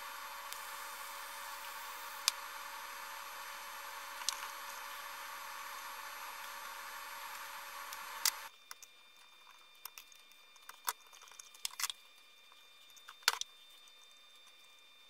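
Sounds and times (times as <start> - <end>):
steady hiss: 0.0 - 8.6.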